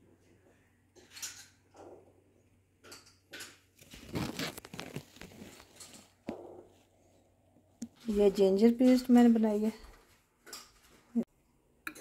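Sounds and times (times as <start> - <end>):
plastic bag crinkling: 3.8 - 6.2.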